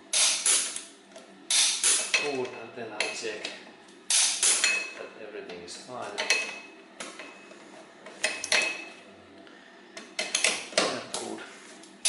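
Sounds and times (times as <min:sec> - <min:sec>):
torque wrench clicks: 0:01.5 - 0:02.1, 0:04.1 - 0:04.6.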